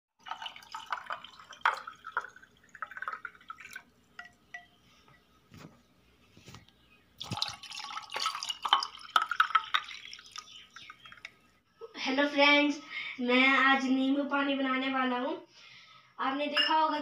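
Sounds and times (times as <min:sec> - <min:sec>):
liquid pouring and splashing: 0:00.2 - 0:04.4, 0:07.2 - 0:11.4
ice clinking against glass: 0:07.2 - 0:10.5.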